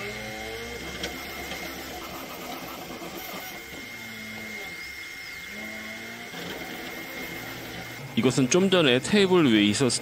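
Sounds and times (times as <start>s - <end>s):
printer motors whining: 0.0s - 10.0s.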